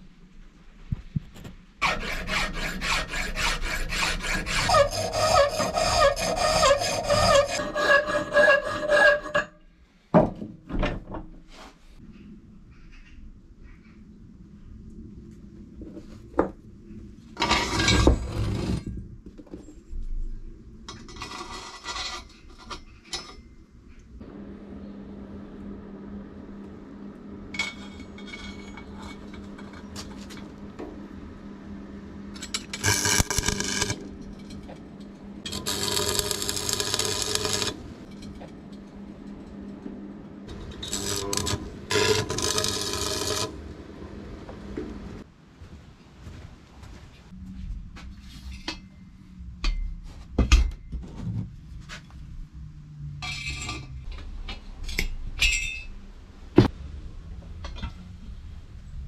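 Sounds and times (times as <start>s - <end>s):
metal rasping scrapes: 1.8s - 9.6s, 21.0s - 23.4s, 32.5s - 34.5s, 35.4s - 38.4s, 40.5s - 43.6s
steady low hum: 22.3s - 59.0s.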